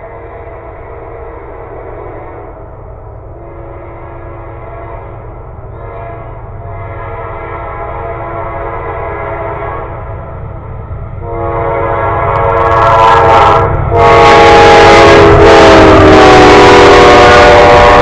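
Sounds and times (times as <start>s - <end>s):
train horn blast: 0.0s - 2.6s, 3.4s - 10.2s, 11.2s - 18.0s
low rumble of train: 0.0s - 18.0s.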